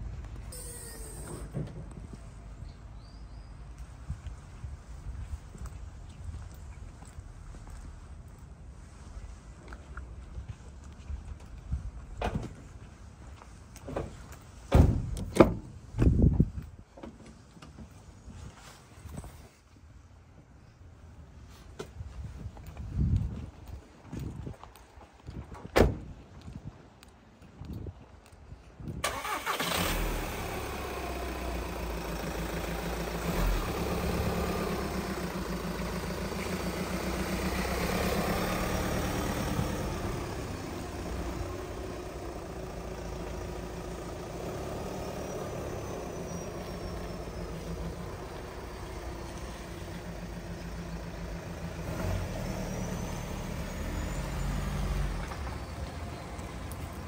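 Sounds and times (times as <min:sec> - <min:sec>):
diesel van engine: 0:00.0 - 0:03.0, 0:29.0 - 0:57.0.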